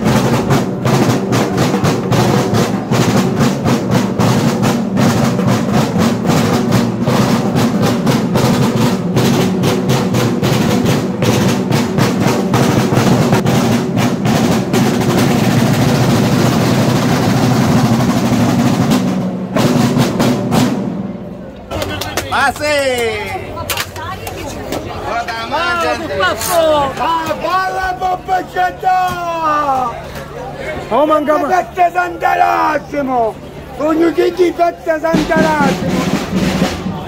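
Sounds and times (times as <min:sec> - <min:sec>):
fast dense drumming: 0:00.0 - 0:21.2, 0:34.6 - 0:37.0.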